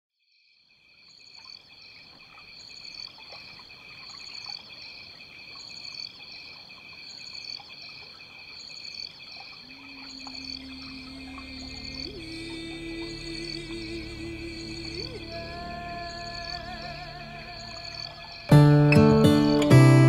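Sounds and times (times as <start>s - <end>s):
insect chorus: 0.3s - 20.0s
trickling water: 9.2s - 19.4s
low music note: 10.2s - 20.0s.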